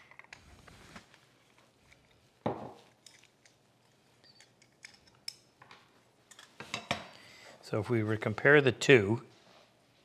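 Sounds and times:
light metallic clicks and clinks: 2.9 - 5.6.

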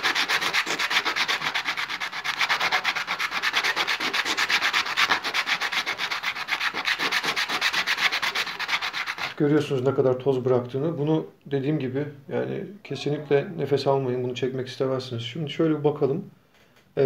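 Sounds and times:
stone rubbing on wet sandpaper: 0.0 - 9.4.

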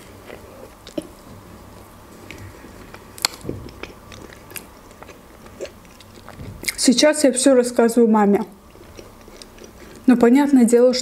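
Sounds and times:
person chewing: 0.0 - 6.8, 8.6 - 10.1.

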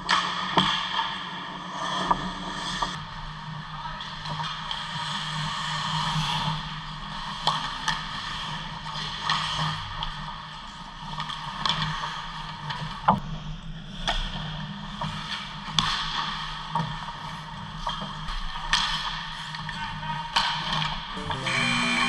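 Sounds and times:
background music with guitar: 21.2 - 22.0.

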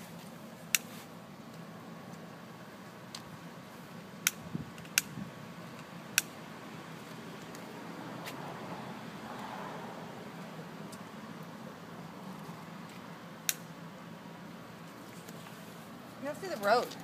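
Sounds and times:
soft rushing of burning fluff: 0.0 - 1.7, 14.8 - 16.3.

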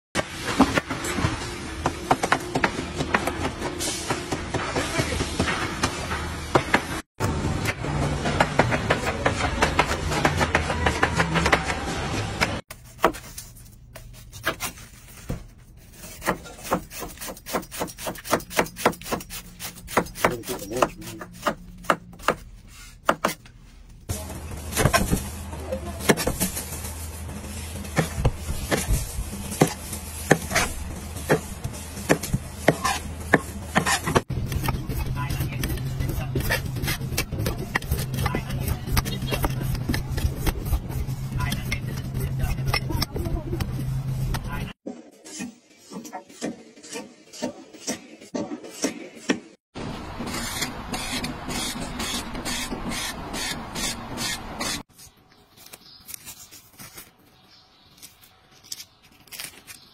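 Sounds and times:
blade scraping fruit skin: 32.0 - 44.6, 50.2 - 57.1, 57.9 - 59.9.

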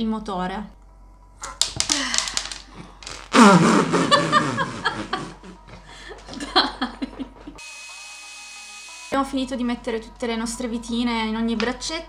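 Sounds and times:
person vocalizing with falling pitch: 3.0 - 5.4.

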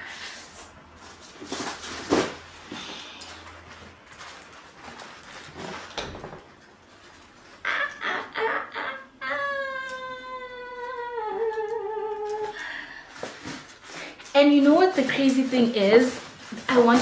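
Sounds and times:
paper bag rustling: 0.9 - 7.6, 13.2 - 17.0.

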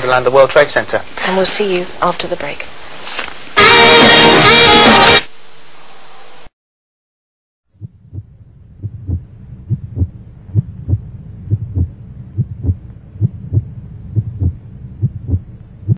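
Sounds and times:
low hum: 7.7 - 15.9
heartbeat thumps: 7.8 - 15.9.

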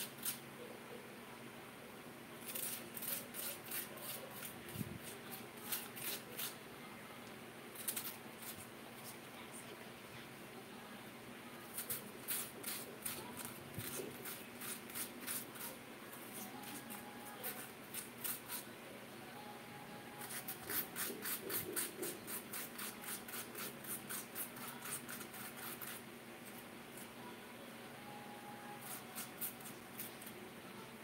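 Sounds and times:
potato grating on metal grater: 0.0 - 0.4, 2.4 - 6.6, 7.8 - 8.7, 11.7 - 18.7, 20.2 - 26.1, 28.8 - 30.3.

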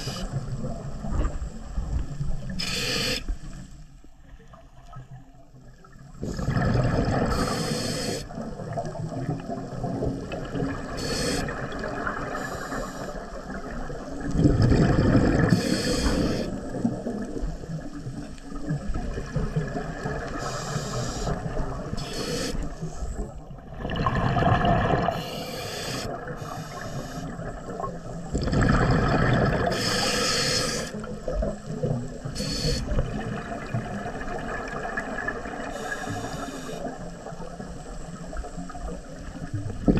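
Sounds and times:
regulator hiss and bubbling: 0.0 - 3.9, 5.6 - 39.9
diver exhaling bubbles underwater: 6.2 - 7.6, 13.6 - 17.4, 23.2 - 25.2, 27.6 - 31.9.

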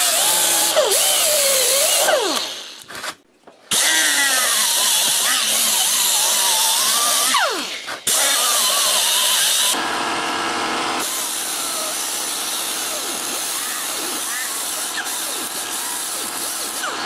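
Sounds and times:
wire brush grinder whirring on metal: 3.7 - 9.9, 11.0 - 17.0.

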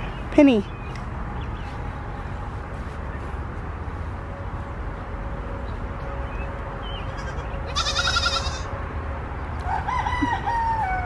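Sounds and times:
goat bleating: 7.1 - 8.7.

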